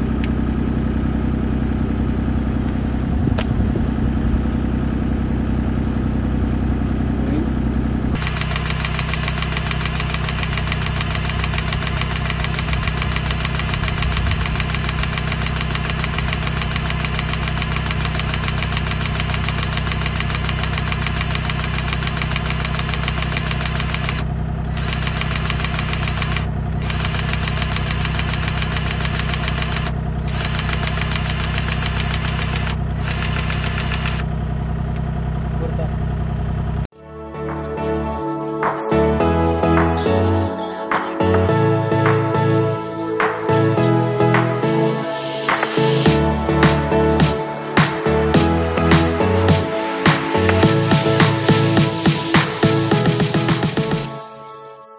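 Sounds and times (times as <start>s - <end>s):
diesel engine idling: 0.0s - 36.9s.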